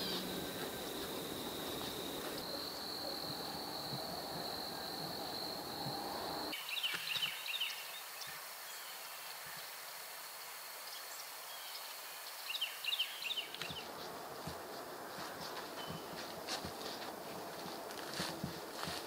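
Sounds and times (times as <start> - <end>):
high insect whine: 0.0 - 13.4.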